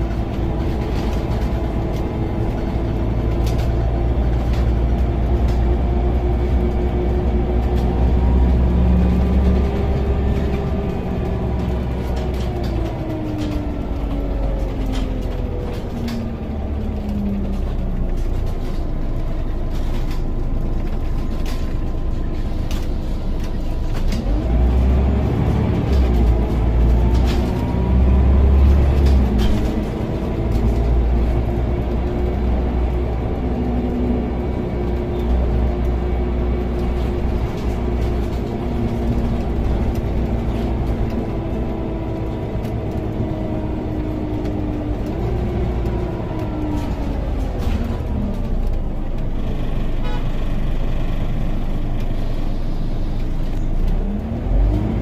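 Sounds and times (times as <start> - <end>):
bus diesel engine: 0.0 - 55.0
bus interior rattles: 0.0 - 55.0.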